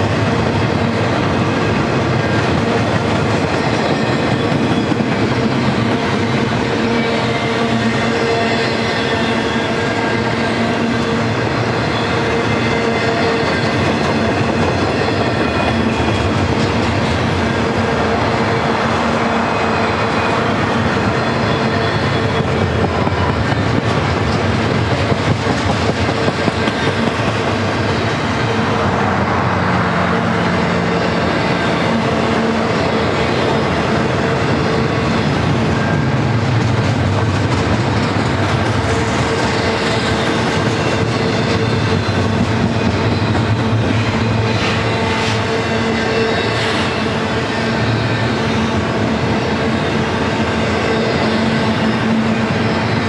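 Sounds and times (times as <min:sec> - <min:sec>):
clickety-clack over rail joints: 0:00.0 - 0:53.0
train wheels rumbling on rail: 0:00.0 - 0:53.0.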